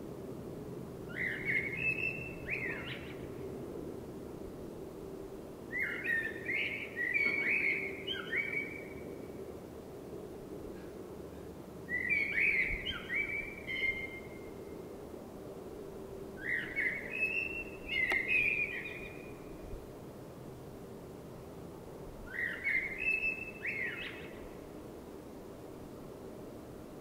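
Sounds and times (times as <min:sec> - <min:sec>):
low background hum: 0:00.0 - 0:27.0
blackbird singing: 0:01.1 - 0:03.2, 0:05.7 - 0:09.0, 0:11.9 - 0:14.5, 0:16.4 - 0:19.6, 0:22.3 - 0:24.4.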